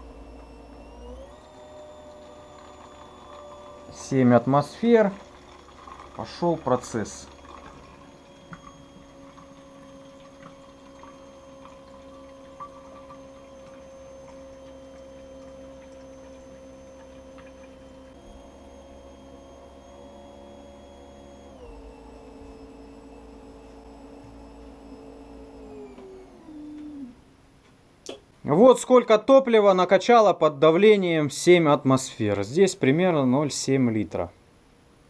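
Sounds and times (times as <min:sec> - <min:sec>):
fuel pump humming whine: 0:00.0 - 0:27.4
fuel running into bottle: 0:02.2 - 0:18.8.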